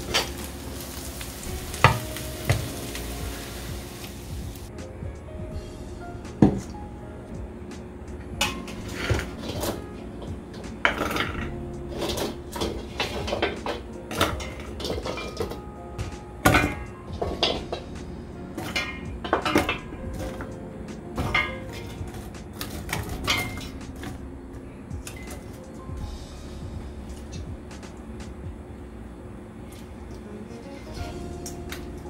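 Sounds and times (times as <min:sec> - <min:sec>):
dishes and pots clinking: 0:00.0 - 0:03.0, 0:08.4 - 0:17.9, 0:18.6 - 0:20.5, 0:21.2 - 0:24.2, 0:25.0 - 0:25.6.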